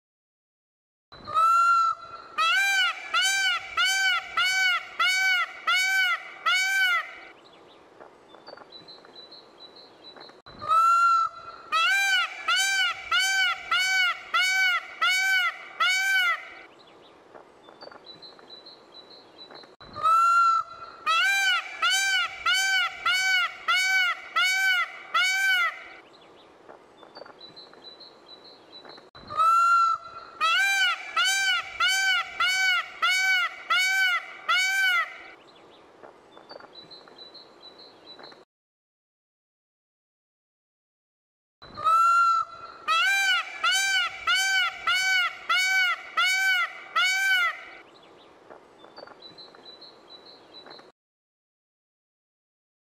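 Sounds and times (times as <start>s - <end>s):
peacock honking calls: 1.3s - 7.3s, 10.6s - 16.7s, 20.0s - 26.0s, 29.3s - 35.4s, 41.8s - 47.8s.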